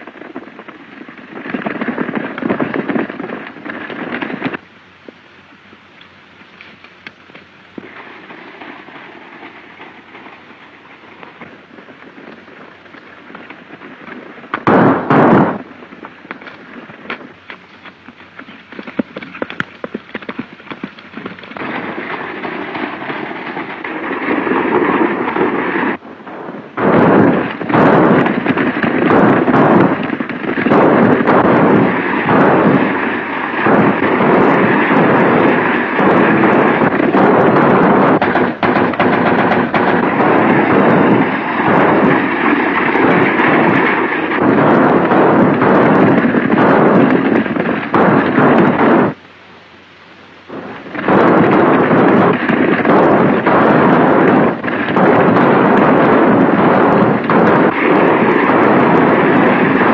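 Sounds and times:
rapid clatter of gunfire: 0.0 - 4.6, 7.8 - 49.2, 50.5 - 59.9
gunshots: 13.3 - 16.4, 20.3 - 49.2, 50.5 - 59.9
commotion: 20.7 - 59.9.

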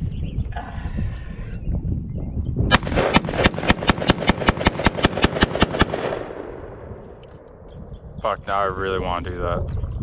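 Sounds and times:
rapid gunshots: 2.7 - 6.7
gunshot echo: 2.7 - 7.5.

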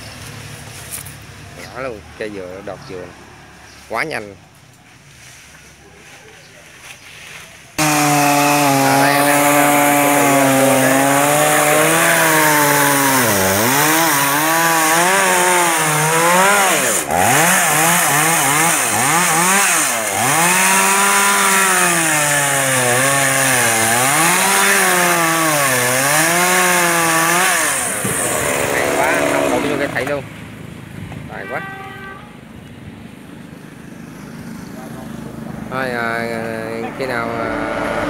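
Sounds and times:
chainsaw cutting wood: 7.8 - 30.2.

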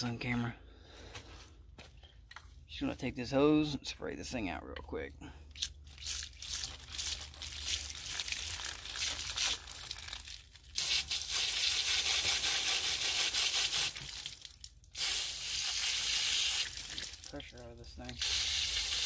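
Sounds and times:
hose nozzle spraying water: 5.6 - 17.4, 18.0 - 19.0.

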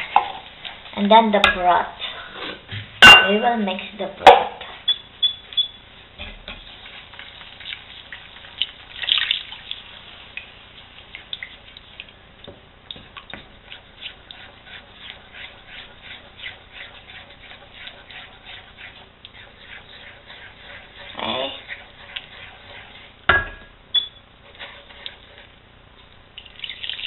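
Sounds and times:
wooden spoon scraping a pan: 0.0 - 9.0, 13.0 - 25.6.

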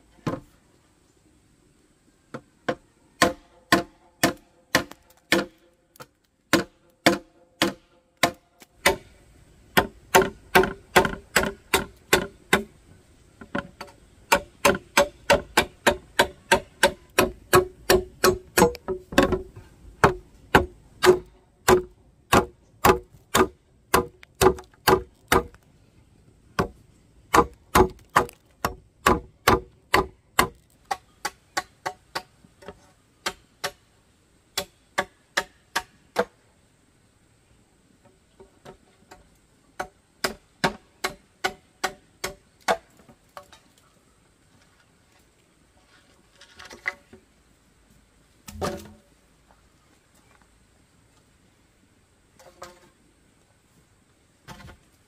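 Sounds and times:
knife chopping bamboo: 3.2 - 9.1, 9.8 - 12.7, 14.3 - 25.6, 26.6 - 32.3
bamboo ringing: 13.4 - 25.6.

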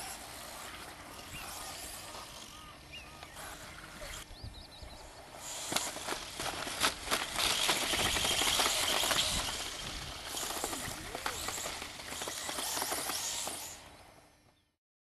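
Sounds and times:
electric rc bike motor hiss: 0.0 - 4.3, 5.3 - 14.3.

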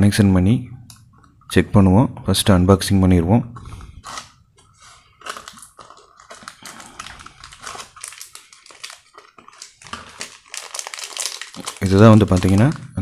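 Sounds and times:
paper packet tearing: 3.6 - 13.0
plastic bag crinkling: 3.6 - 13.0.

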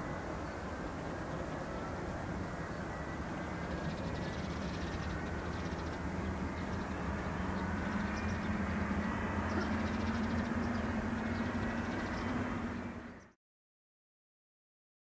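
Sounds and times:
distant jet engines rumbling: 0.0 - 13.3.

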